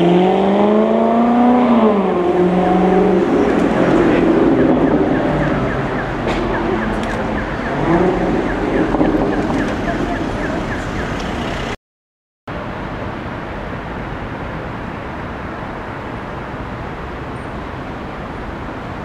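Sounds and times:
sports car engine accelerating: 0:00.0 - 0:10.0
city traffic noise: 0:00.0 - 0:11.8, 0:12.5 - 0:19.0.

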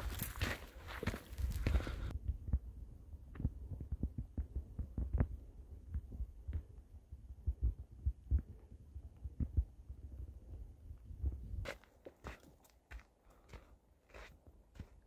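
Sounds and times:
wind buffeting microphone: 0:00.0 - 0:11.7.

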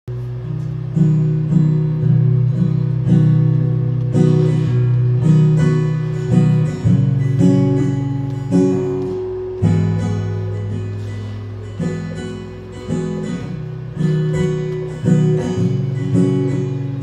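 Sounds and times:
acoustic guitar strumming chords: 0:00.1 - 0:17.0.

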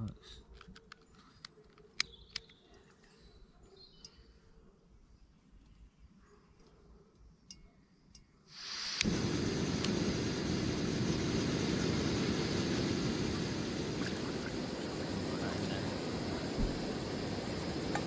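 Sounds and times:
gas hissing: 0:08.5 - 0:18.0
gas burner rushing: 0:08.6 - 0:18.0.

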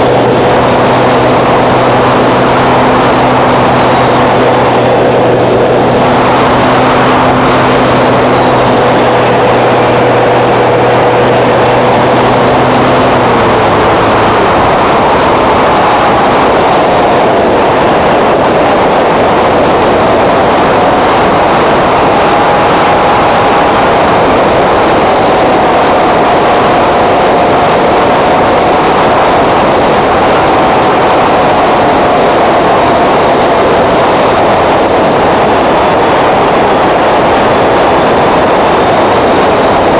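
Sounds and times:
electric motor hum: 0:00.0 - 0:17.7
faint wavering whine: 0:00.0 - 0:35.3
wind and airflow rushing: 0:00.0 - 0:39.9.

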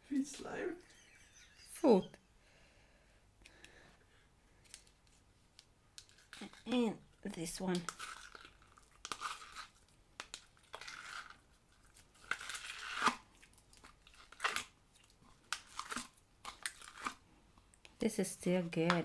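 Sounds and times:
slime crackling and popping: 0:07.7 - 0:17.2.

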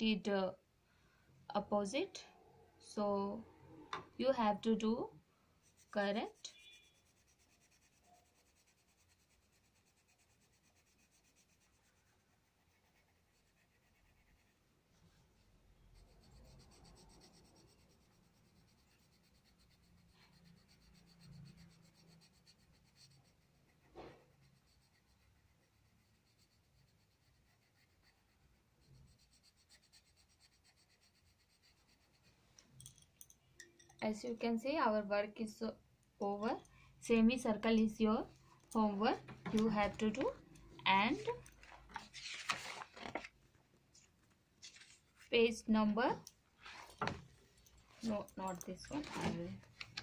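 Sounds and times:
pencil scratching on paper: 0:05.6 - 0:32.4.

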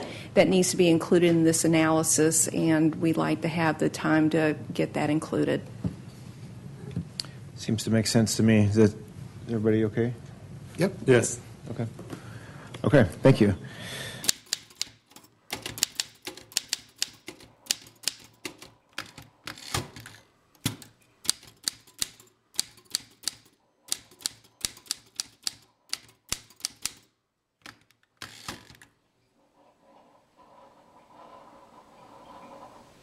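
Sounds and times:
manual typewriter clacking: 0:14.2 - 0:29.0.

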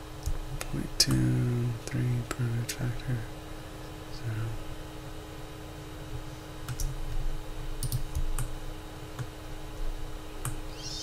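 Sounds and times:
steady electrical hum: 0:00.0 - 0:11.0.

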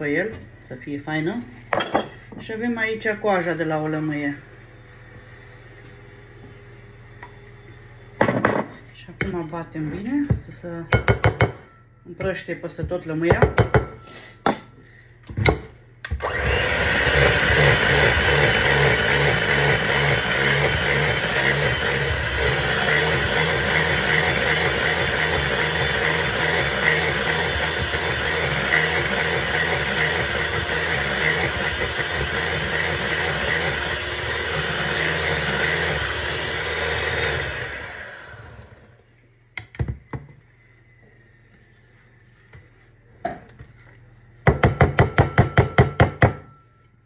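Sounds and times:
electric hand mixer running: 0:16.1 - 0:39.0.

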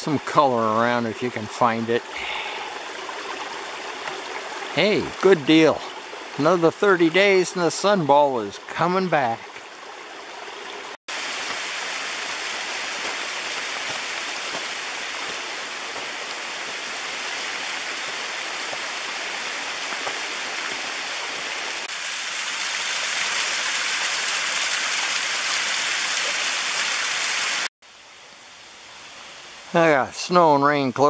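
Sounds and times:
water splashing down rock face: 0:11.1 - 0:27.7.

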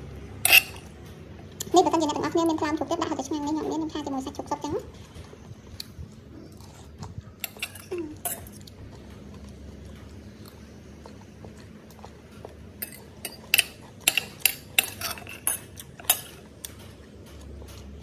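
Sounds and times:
cutlery clinking on a plate: 0:00.4 - 0:00.9, 0:07.4 - 0:08.7, 0:12.8 - 0:17.9.

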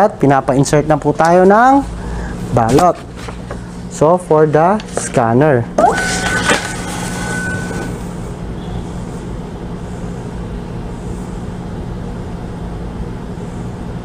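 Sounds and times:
steady low hum: 0:00.0 - 0:14.0
steady high tone: 0:05.8 - 0:09.1.

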